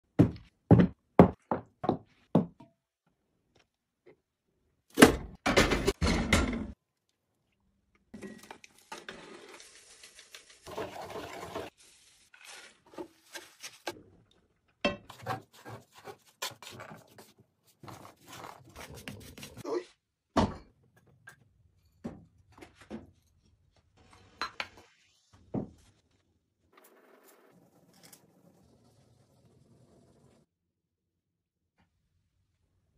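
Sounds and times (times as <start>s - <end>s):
wooden spoon stirring in metal pot: 8.3s - 14.0s, 14.9s - 19.6s.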